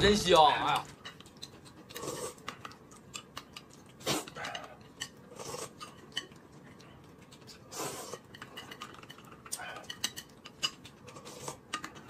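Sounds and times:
chopsticks and spoon clicking: 0.8s - 5.2s.

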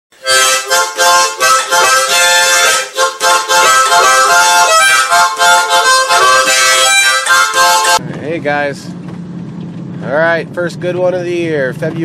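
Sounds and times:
harmonica rhythmic chords: 0.1s - 8.0s.

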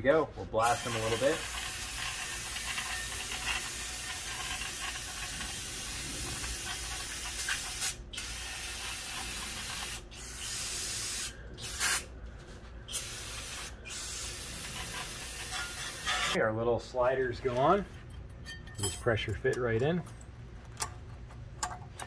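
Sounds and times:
aerosol spray hissing: 12.9s - 16.1s.

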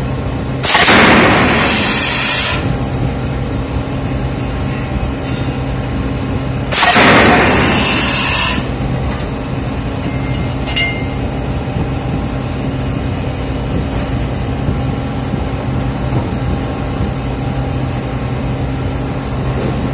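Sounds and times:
low machinery drone: 0.0s - 19.9s
power hammer pounding: 6.7s - 8.8s.

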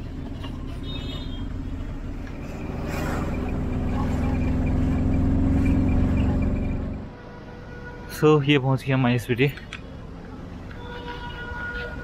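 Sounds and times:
van engine running: 0.0s - 7.1s.

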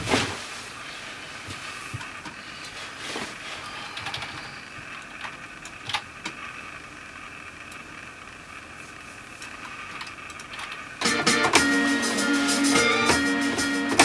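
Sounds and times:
faint background hum: 0.0s - 14.0s.

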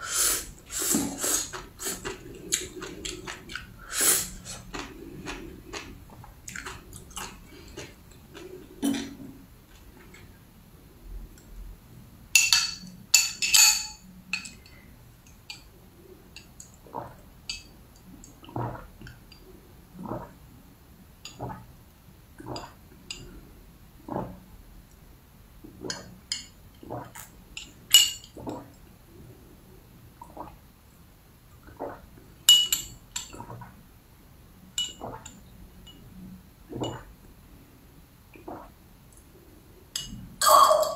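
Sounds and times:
swallowing gulps through a straw: 0.7s - 10.1s, 20.0s - 20.4s, 30.2s - 30.6s, 31.6s - 32.2s, 38.4s - 38.8s
glass clinking: 12.4s - 14.7s, 27.6s - 28.4s, 32.5s - 33.4s, 34.8s - 35.0s, 40.0s - 40.9s
straw clinking against glass: 40.0s - 40.9s.

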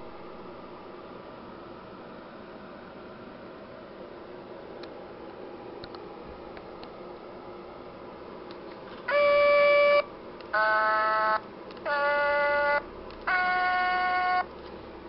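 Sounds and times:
toy singing electronic notes: 9.1s - 10.0s, 10.6s - 14.5s.

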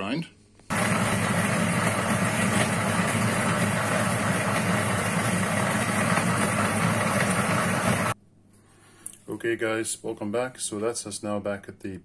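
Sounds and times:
coffee grinder motor whir: 0.7s - 8.2s.

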